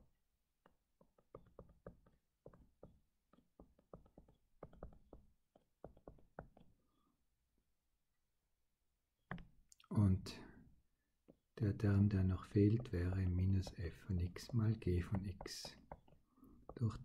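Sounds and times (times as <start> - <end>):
stylus tapping on tablet screen: 0.0 - 6.8, 9.2 - 9.7, 11.2 - 17.0.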